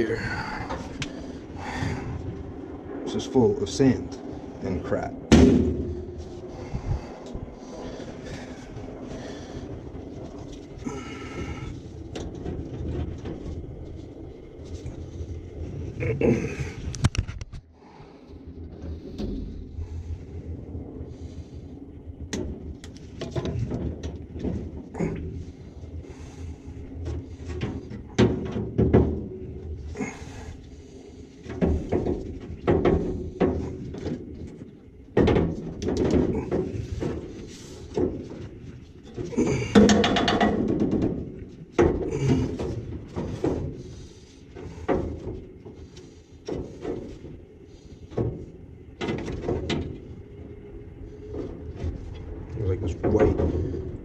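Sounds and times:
tools knocking and clunking: 31.4s - 47.4s.

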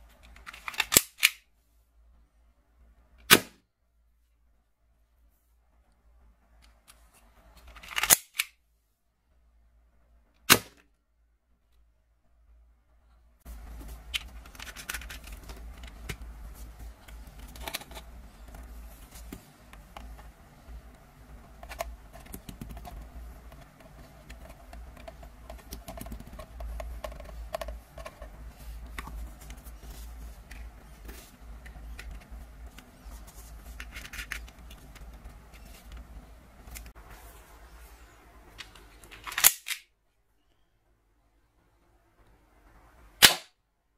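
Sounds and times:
plastic toy gun clicks and rattles: 0.2s - 1.4s, 7.6s - 8.6s, 39.0s - 39.9s.

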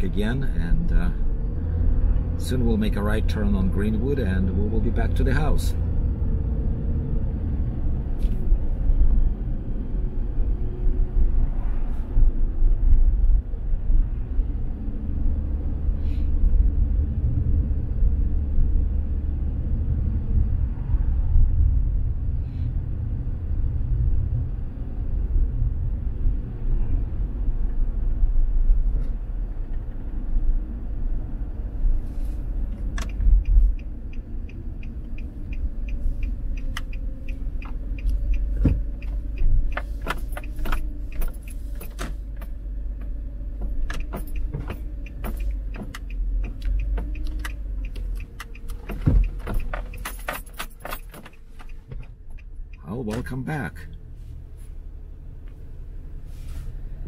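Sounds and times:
car road rumble: 0.0s - 57.0s
light clicks and rattles: 32.7s - 53.2s.

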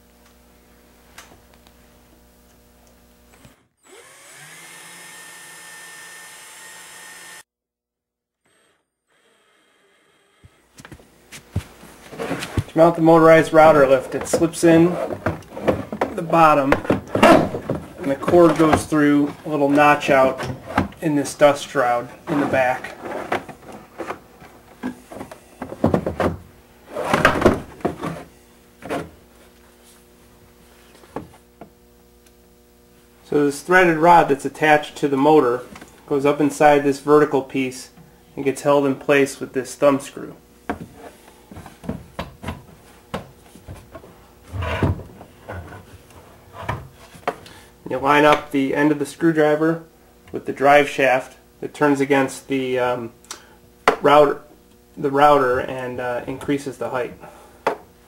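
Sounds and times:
cordless drill whining: 3.3s - 7.5s, 8.4s - 10.8s
knocks and clunks on wood: 24.8s - 26.5s.

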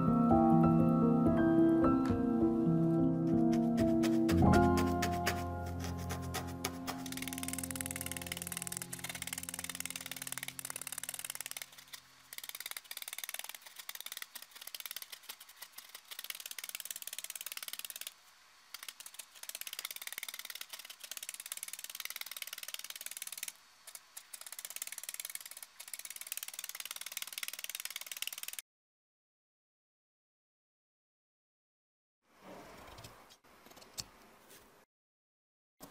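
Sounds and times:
background music: 0.0s - 10.9s
felting needles punching wool: 3.3s - 18.1s.

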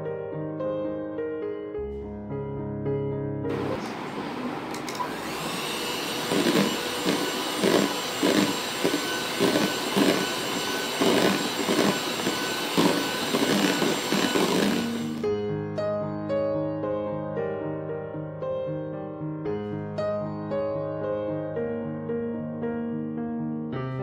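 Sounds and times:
soft piano music: 0.0s - 4.5s, 15.2s - 24.0s
electric hand mixer whipping cream: 3.5s - 15.3s.

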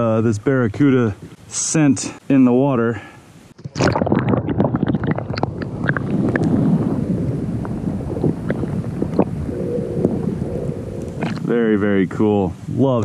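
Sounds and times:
wind noise on microphone: 3.5s - 13.0s.

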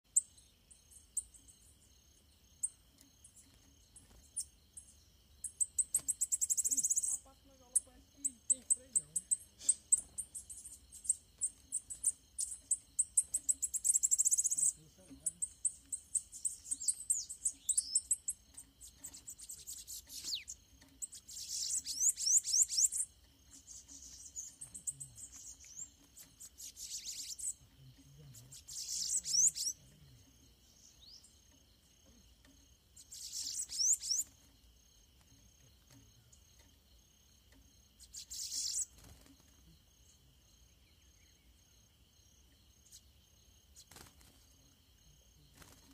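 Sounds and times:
high insect drone: 0.1s - 45.9s
birds trilling: 2.6s - 34.6s, 38.0s - 39.6s.

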